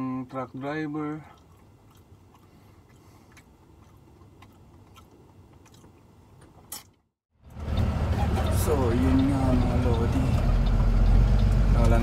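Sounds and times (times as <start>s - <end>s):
person chewing: 1.3s - 7.0s.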